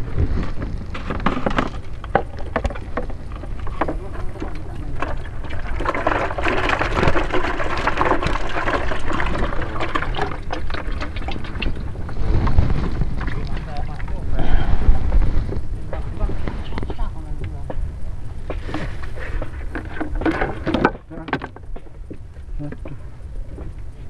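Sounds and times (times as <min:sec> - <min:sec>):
wind rumble on microphone: 0:00.0 - 0:24.0
water splashing and pouring: 0:02.6 - 0:14.3.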